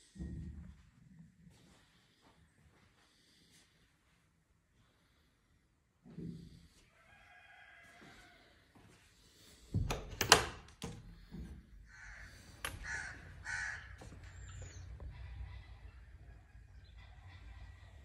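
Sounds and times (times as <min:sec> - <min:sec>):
door latch clicking: 0:09.8 - 0:11.0
birds harsh calls: 0:11.9 - 0:17.8.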